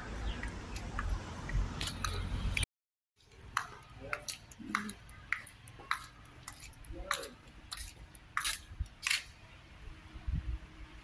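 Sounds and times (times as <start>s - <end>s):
footsteps on paved walkway: 0.0s - 9.6s
low wind rumble: 9.7s - 11.0s.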